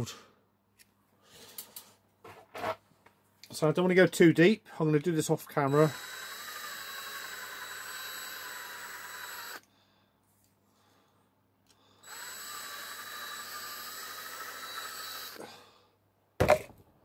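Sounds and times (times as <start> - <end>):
electric drill drilling metal: 5.6 - 9.6, 12.0 - 15.4.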